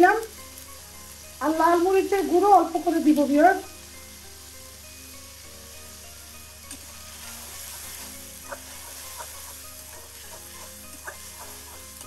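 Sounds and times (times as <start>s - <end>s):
onions sizzling in oil: 0.0s - 12.0s
metal spatula stirring: 6.7s - 12.0s.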